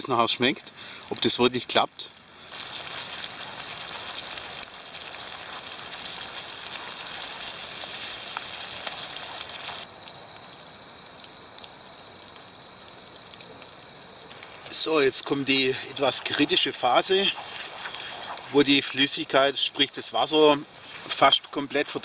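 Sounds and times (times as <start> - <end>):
syrup boiling and sizzling: 0.0 - 22.0
small pops: 2.1 - 14.8.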